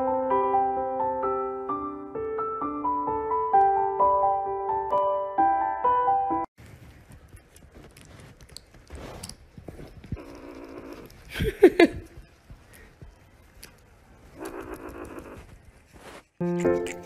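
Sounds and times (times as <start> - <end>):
kitten gnawing on tube: 6.6 - 11.3
kitten wavering cry: 16.4 - 17.0.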